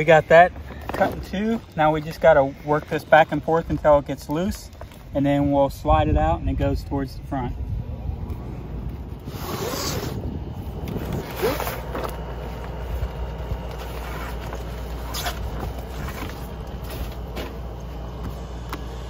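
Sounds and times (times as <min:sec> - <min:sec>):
steady low hum: 0:00.0 - 0:19.0
awning fabric scraping and rustling: 0:09.2 - 0:10.3, 0:10.9 - 0:12.4, 0:13.5 - 0:17.4.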